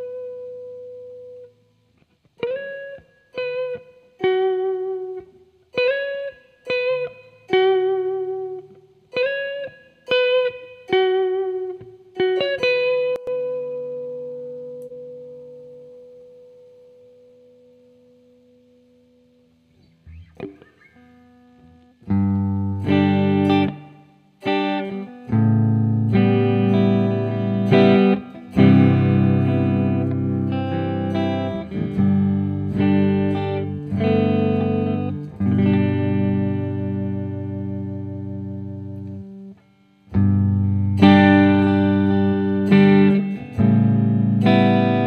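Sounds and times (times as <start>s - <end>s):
electric guitar chords with reverb: 0.0s - 45.0s.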